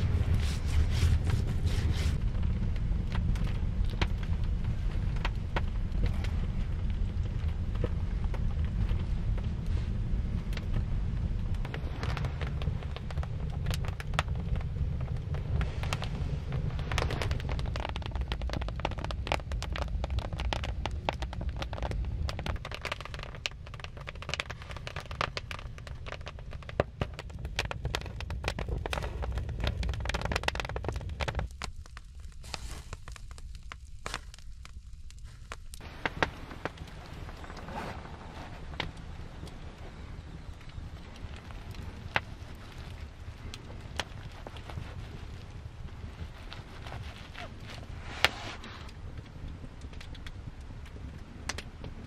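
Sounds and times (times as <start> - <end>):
crackling and rustling snaps: 0.0 - 52.0
steady low rumble: 0.0 - 52.0.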